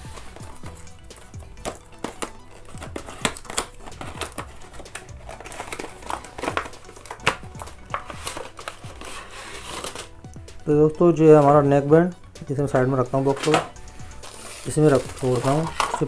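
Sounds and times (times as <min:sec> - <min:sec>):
packaging rustling and crinkling: 0:00.0 - 0:10.2, 0:13.0 - 0:16.0
plastic packaging clicks: 0:01.1 - 0:10.1.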